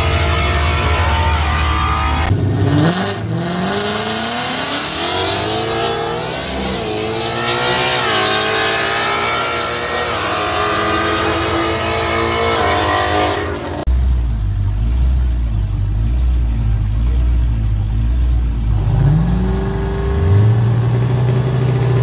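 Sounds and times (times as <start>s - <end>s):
drag cars accelerating: 0.0s - 22.0s.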